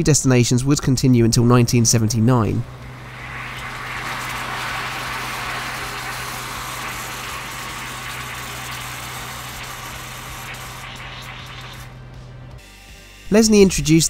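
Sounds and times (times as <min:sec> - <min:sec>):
constant low hum: 0:01.4 - 0:13.9
solution fizzing: 0:02.6 - 0:12.0
pearls pouring into water: 0:02.8 - 0:11.9.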